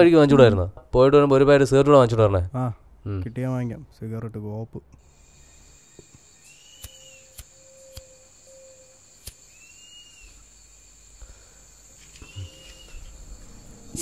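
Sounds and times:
high cricket trill: 5.0s - 14.0s
rising and falling insect calls: 5.0s - 14.0s
sharp clicks: 6.7s - 8.1s, 9.2s - 9.4s.

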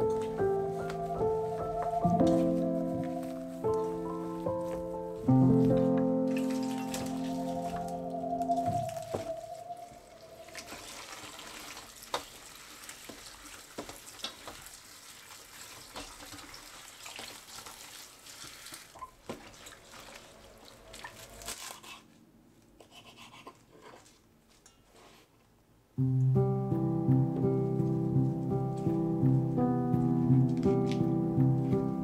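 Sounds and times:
hands rubbing leaves with splashes: 0.3s - 22.0s.

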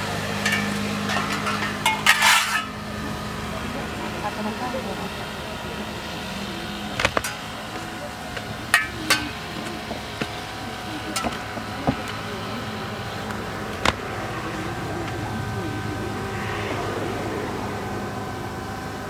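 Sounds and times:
steady hum: 0.0s - 19.0s
swords clacking on metal shields: 0.4s - 2.7s.

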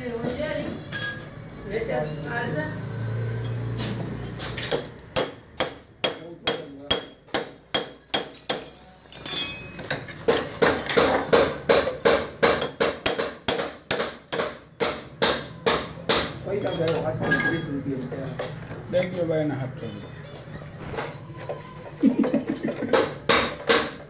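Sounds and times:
hammer striking metal: 4.6s - 17.5s, 22.9s - 24.0s.

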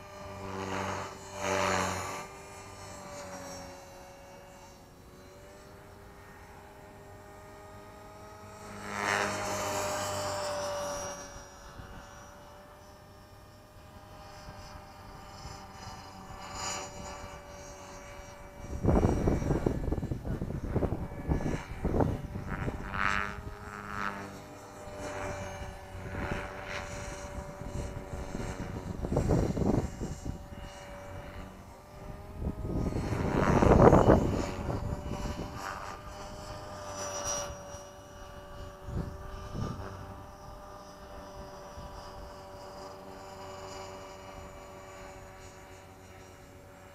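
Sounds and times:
rc helicopter rotor whining: 0.0s - 46.9s
wind buffeting microphone: 18.1s - 24.0s, 24.9s - 36.7s, 37.3s - 40.7s.

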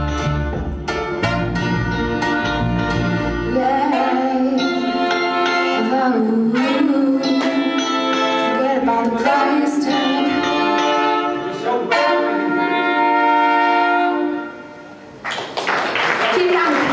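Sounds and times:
deep bass: 0.0s - 3.8s
live reggae band: 0.0s - 15.1s
trumpet and saxophone: 0.0s - 15.1s
woman singing lead vocal: 3.4s - 10.9s.

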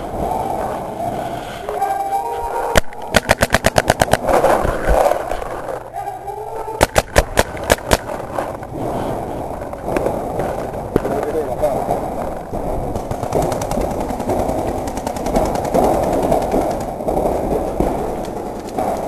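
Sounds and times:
paintball marker firing: 2.8s - 5.1s, 6.8s - 8.2s, 13.0s - 19.0s.

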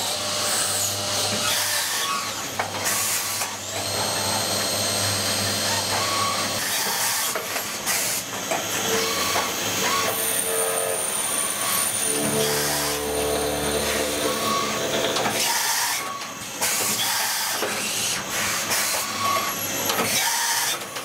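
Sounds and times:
machine high whine: 10.2s - 16.8s.

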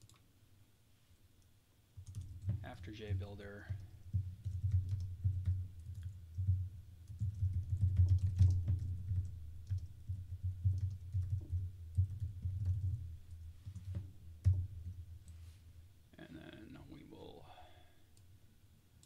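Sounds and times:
computer keyboard typing: 2.0s - 14.0s.

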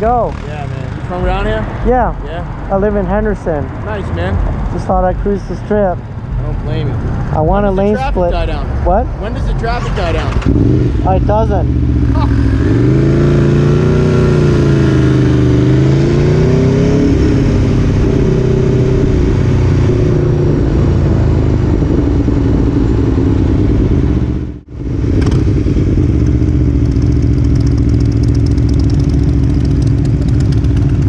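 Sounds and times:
motorcycle engine running: 9.8s - 31.0s.

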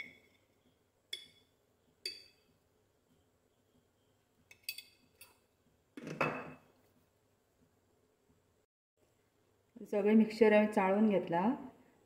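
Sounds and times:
metal spoon clinking on pan: 4.5s - 5.4s.

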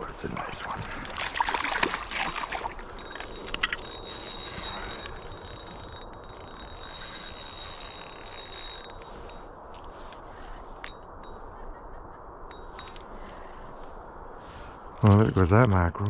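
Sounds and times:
fish thrashing and splashing: 0.6s - 5.4s.

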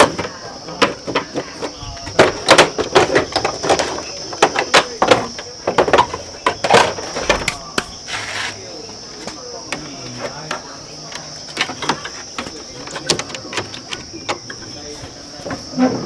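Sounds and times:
plastic panels clicking and knocking: 0.0s - 7.9s, 9.7s - 16.0s.

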